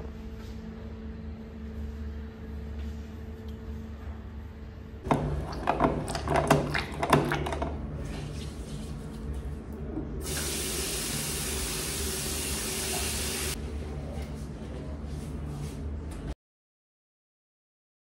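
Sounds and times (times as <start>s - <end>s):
tap water running over hands: 10.2s - 13.6s.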